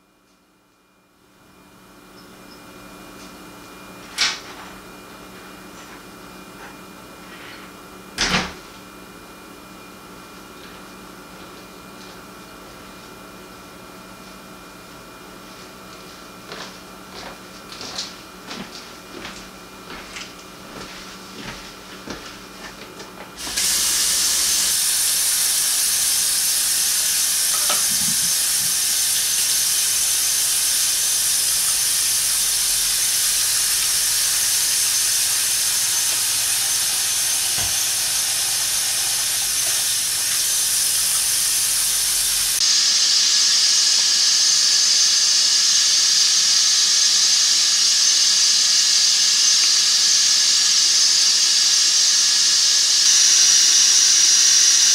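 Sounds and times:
faucet running into a sink: 23.4s - 42.6s.

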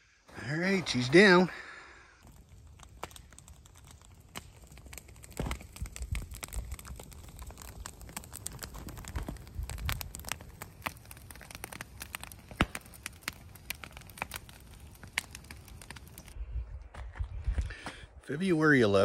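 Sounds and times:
wood fire crackling and popping: 0.3s - 19.0s.

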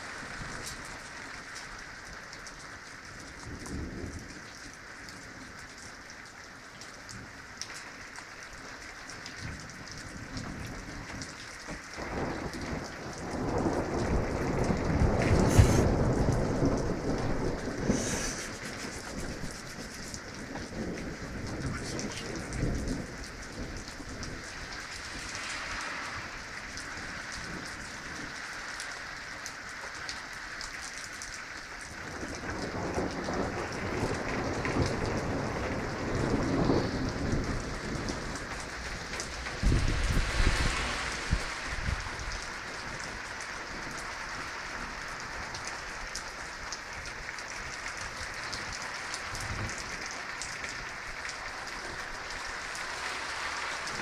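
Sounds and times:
steady rain falling: 0.0s - 54.0s
thunder rolling: 12.0s - 19.6s, 32.5s - 43.1s.

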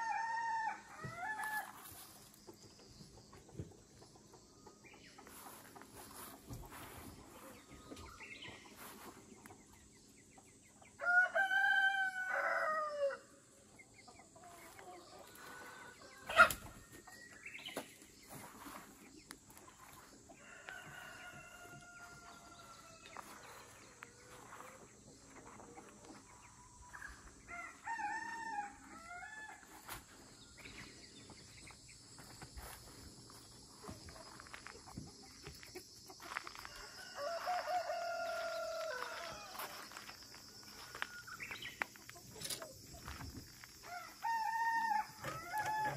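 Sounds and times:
rooster crowing: 0.0s - 1.9s, 11.0s - 13.3s, 20.4s - 23.4s, 27.5s - 29.6s, 36.3s - 40.0s, 43.8s - 45.9s
chickens calling: 0.0s - 45.9s.

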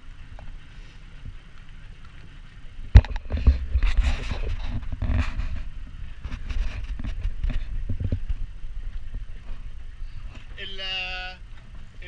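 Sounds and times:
outboard motor running: 0.0s - 12.0s
knocks and rubbing on microphone: 2.9s - 9.7s.

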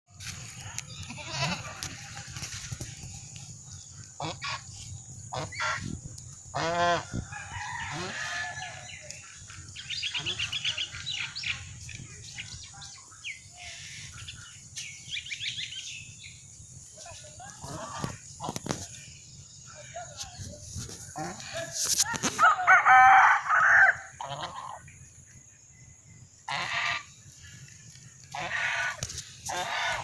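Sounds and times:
geese honking: 4.0s - 5.9s, 6.5s - 7.1s, 22.9s - 24.9s, 26.4s - 27.2s, 28.2s - 30.0s
high-pitched goose calls: 5.3s - 5.9s, 24.2s - 24.8s, 26.5s - 27.1s, 28.3s - 30.0s.

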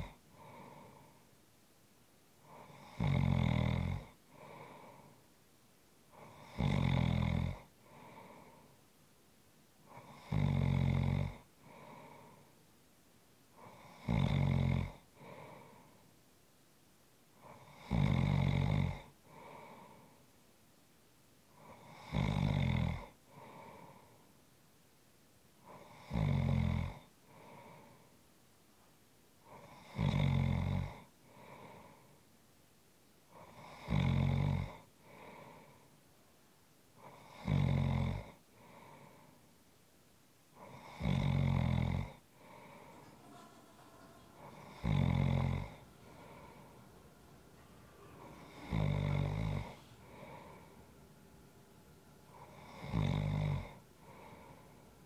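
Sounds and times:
person snoring: 2.5s - 5.1s, 6.2s - 8.6s, 9.9s - 12.4s, 13.6s - 15.9s, 17.4s - 20.2s, 21.6s - 24.1s, 25.7s - 28.0s, 29.5s - 32.0s, 33.3s - 35.8s, 37.0s - 39.3s, 40.6s - 51.5s, 52.2s - 55.0s.

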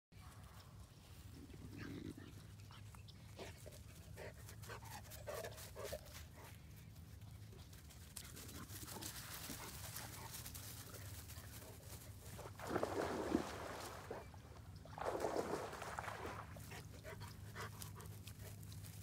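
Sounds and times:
dog panting: 16.7s - 18.7s.

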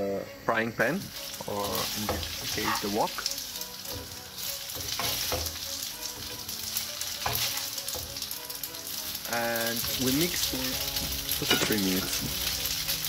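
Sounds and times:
pasta sizzling in oil: 0.7s - 13.0s
utensils scraping and knocking pan: 1.2s - 8.3s, 9.8s - 12.5s.

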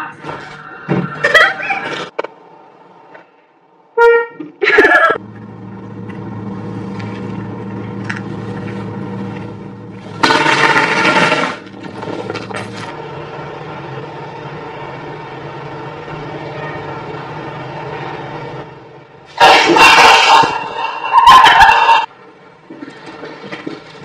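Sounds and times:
car horn honking: 4.0s - 4.5s
steady low hum: 5.2s - 19.4s.

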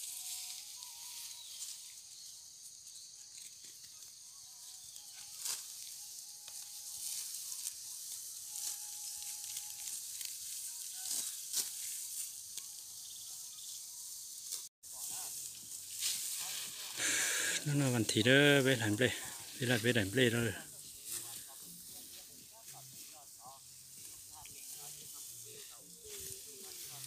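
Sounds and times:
rustling straw: 0.0s - 27.0s
sickles cutting dry stalks: 0.0s - 27.0s
steady high hiss: 4.8s - 27.0s.

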